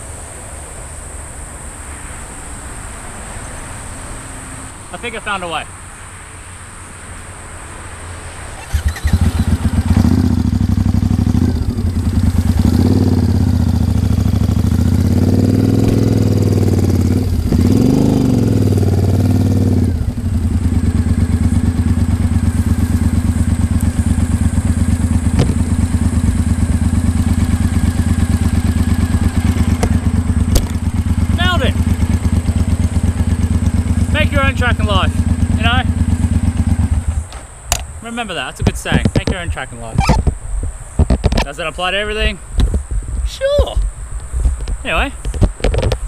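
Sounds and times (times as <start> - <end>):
motorcycle engine revving: 8.5 - 37.8.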